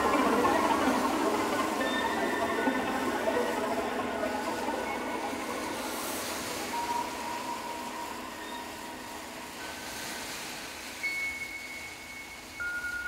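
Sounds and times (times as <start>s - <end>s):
experimental electronic music: 0.0s - 9.7s.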